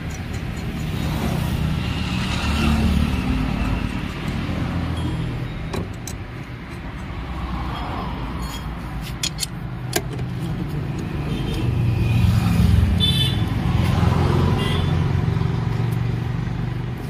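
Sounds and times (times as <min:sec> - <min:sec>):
socket wrench clicks: 0:09.1 - 0:11.2.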